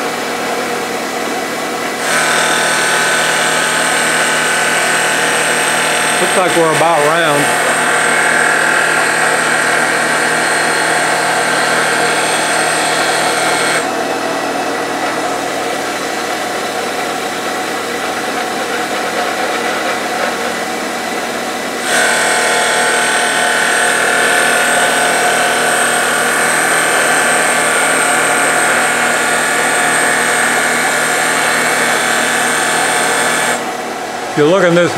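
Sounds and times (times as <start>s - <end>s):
wood lathe machine whine: 0.0s - 34.9s.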